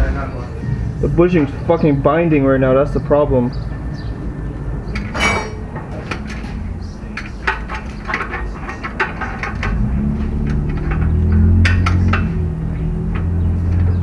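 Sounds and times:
steel tools clinking on metal: 0:04.9 - 0:06.4
ringing metallic strike: 0:05.0 - 0:05.6.

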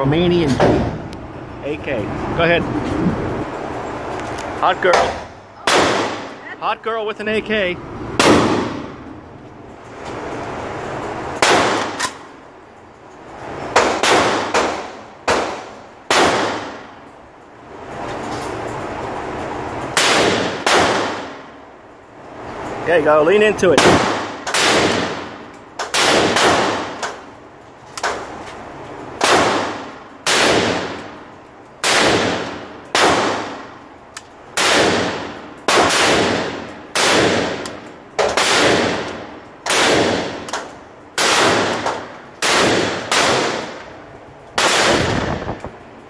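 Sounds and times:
rifle shots ringing indoors: 0:05.6 - 0:06.4, 0:08.1 - 0:09.1, 0:11.4 - 0:12.2, 0:13.7 - 0:17.0, 0:19.9 - 0:21.6, 0:23.7 - 0:27.4, 0:29.2 - 0:31.2, 0:31.8 - 0:33.9, 0:34.5 - 0:45.7.

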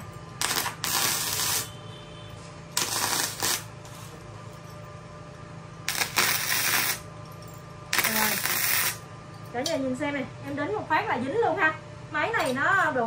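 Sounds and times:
low steady hum: 0:00.0 - 0:13.0
welding arc crackling: 0:00.4 - 0:01.8, 0:02.7 - 0:04.1, 0:05.8 - 0:07.1, 0:07.9 - 0:09.1.

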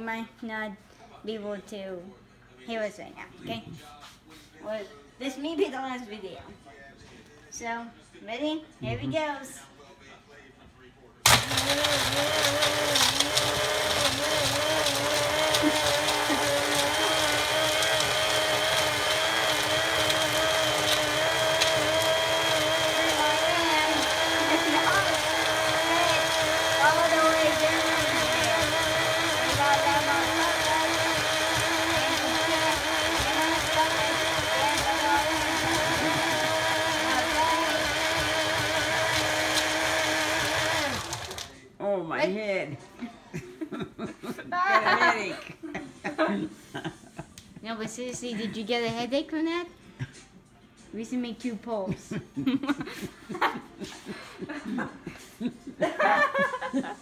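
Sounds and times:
blender crushing ice: 0:11.3 - 0:41.5.

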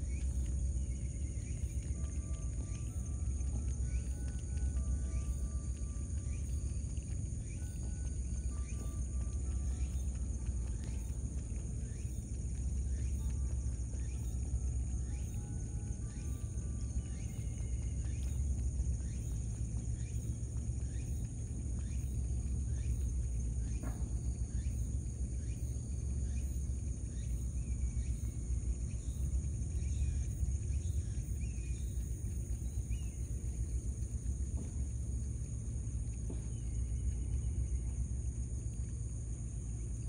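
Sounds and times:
insect trilling: 0:00.0 - 0:40.0
low rumble: 0:00.0 - 0:40.0.

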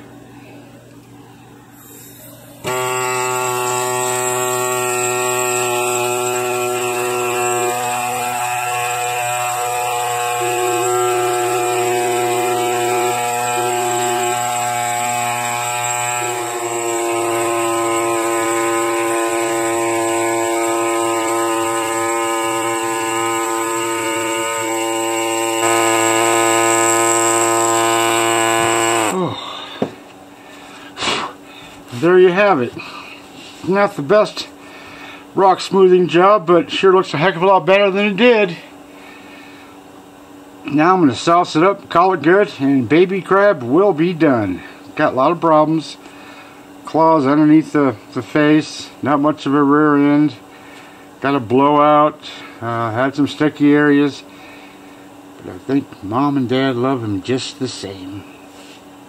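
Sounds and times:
air scribe buzzing: 0:01.7 - 0:36.5.

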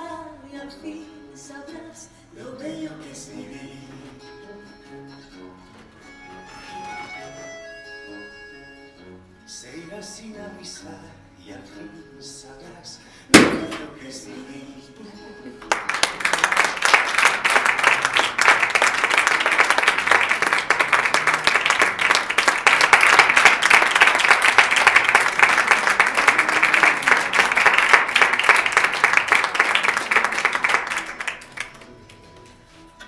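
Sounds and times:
audience applauding: 0:15.6 - 0:32.6.

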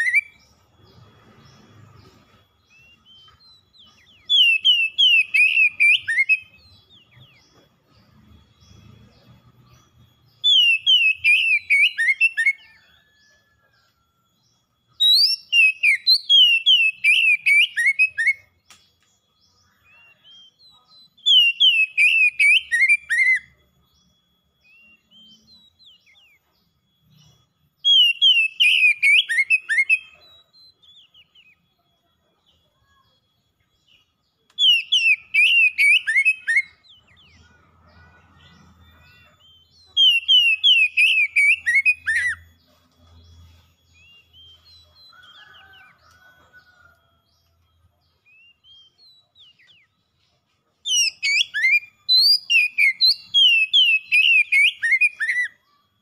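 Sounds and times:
bird singing whistled notes: 0:00.0 - 0:56.0.

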